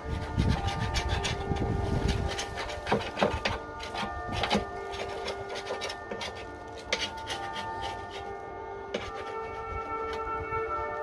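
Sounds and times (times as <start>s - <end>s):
brush scrubbing metal: 0.0s - 10.4s.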